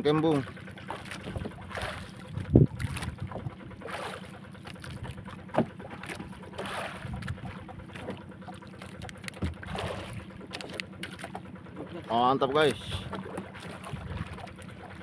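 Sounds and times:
steady low hum: 0.0 - 15.0
water sloshing against boat: 0.0 - 15.0
wind on microphone: 2.3 - 3.6.

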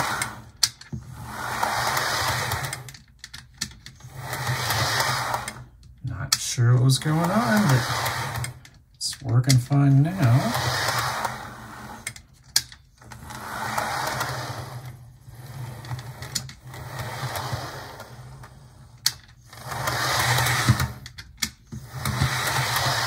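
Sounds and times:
model train motor whirring: 0.0 - 3.0, 4.0 - 5.7, 7.0 - 8.7, 10.1 - 12.2, 13.1 - 21.2, 21.8 - 23.0.

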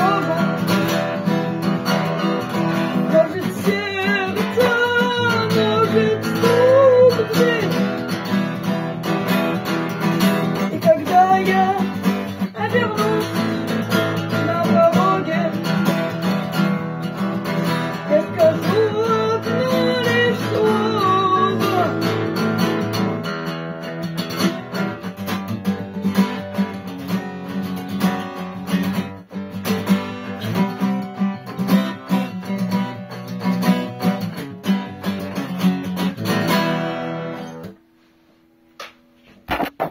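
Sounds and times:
person singing: 0.0 - 1.0, 2.7 - 8.1, 10.5 - 16.2, 17.9 - 22.4
acoustic guitar strumming: 0.0 - 37.9, 39.2 - 39.9.

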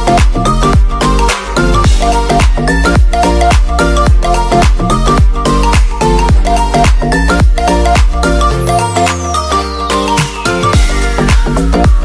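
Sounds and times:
dance music with kick drum: 0.0 - 9.3, 10.1 - 12.0.

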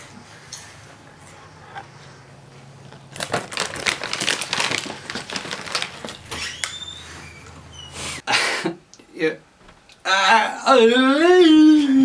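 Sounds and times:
plastic snack bags crinkling: 2.8 - 6.8.

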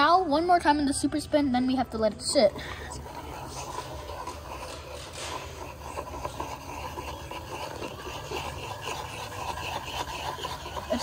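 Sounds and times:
plastic cup scraping on wood: 2.5 - 11.0.

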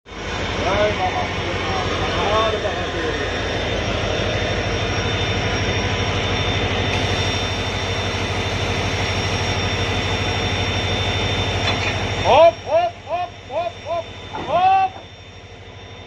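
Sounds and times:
locomotive idling: 0.1 - 16.0.

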